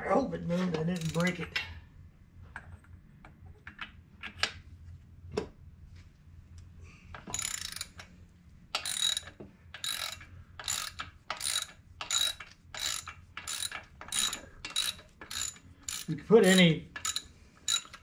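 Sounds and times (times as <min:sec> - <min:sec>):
ratchet wrench clicking: 0:01.0 - 0:01.6, 0:07.2 - 0:08.1, 0:08.7 - 0:18.0.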